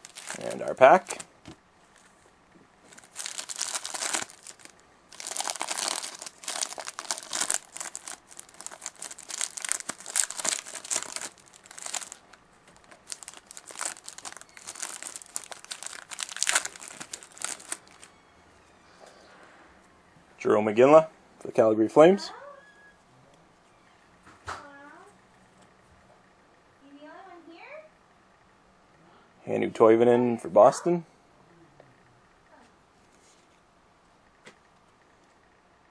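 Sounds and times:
plastic wrapper tearing and crinkling: 0.0s - 1.3s, 2.9s - 18.1s.

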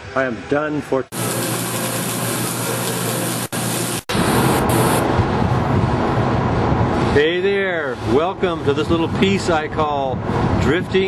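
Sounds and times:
welding arc hissing: 1.1s - 5.0s
rushing noise aboard a ship: 3.6s - 11.0s.

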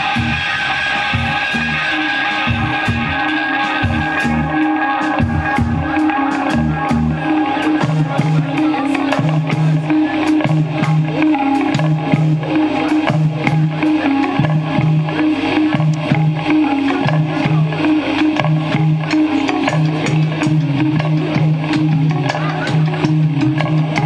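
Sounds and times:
drum kit hits: 0.0s - 14.9s
electric bass figure: 0.0s - 24.0s
electric guitar: 0.0s - 24.0s.

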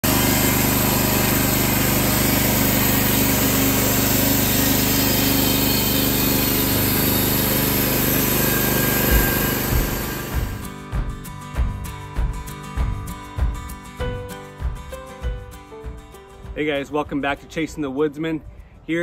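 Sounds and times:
band sawmill engine running: 0.0s - 10.7s
low thumps: 9.0s - 13.6s.

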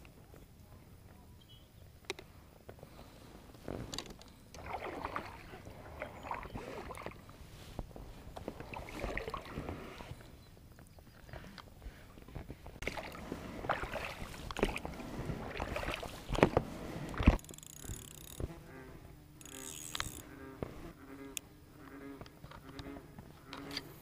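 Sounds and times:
oars splashing in water: 3.7s - 10.4s, 12.2s - 18.6s.

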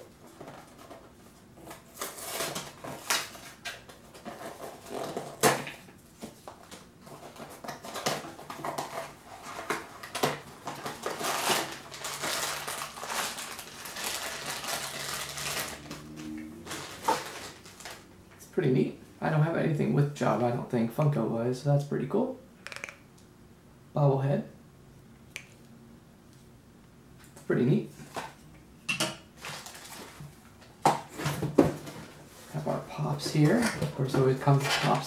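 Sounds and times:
plastic wrapping crinkling: 7.2s - 18.1s, 29.4s - 30.4s.

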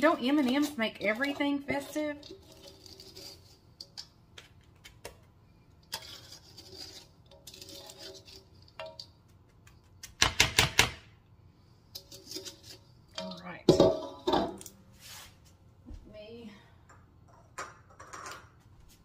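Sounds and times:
metal spoon scraping steel bowl: 0.0s - 4.1s, 5.8s - 9.1s, 11.9s - 14.2s.

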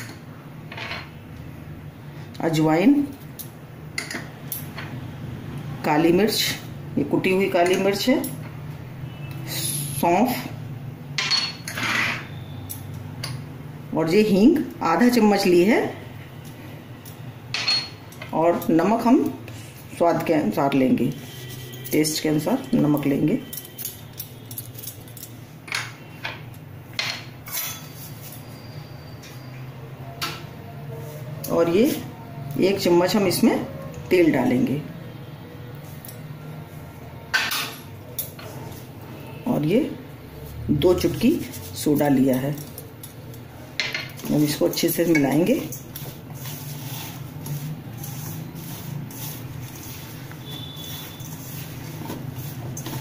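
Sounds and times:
dishes clinking: 11.2s - 13.5s, 17.5s - 18.7s, 37.3s - 38.8s
hand mixing flour in steel bowl: 44.2s - 53.0s.

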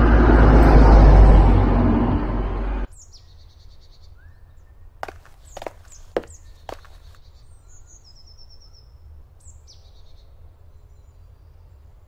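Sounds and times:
songbirds calling: 2.9s - 11.7s.

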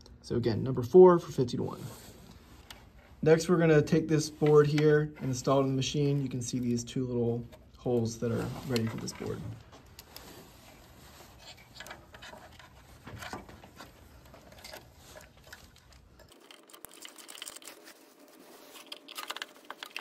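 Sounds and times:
screwdriver scratches and clicks: 18.7s - 20.0s.

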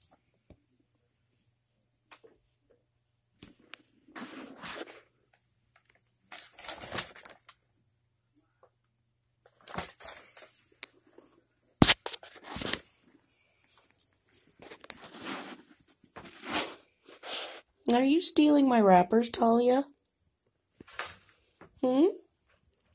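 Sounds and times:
paper wrappers crinkling: 5.8s - 7.7s, 9.4s - 10.9s, 11.8s - 12.9s.

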